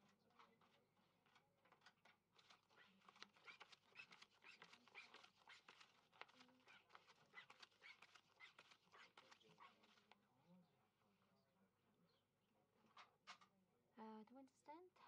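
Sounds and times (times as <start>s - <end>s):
playing cards clicking and snapping: 0.6s - 10.2s
small high squeaks: 2.7s - 5.9s.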